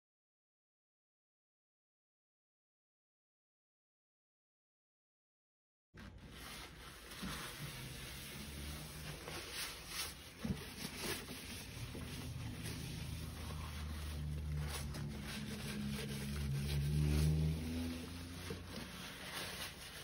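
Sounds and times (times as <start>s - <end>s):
paper crinkling and rustling: 6.0s - 20.0s.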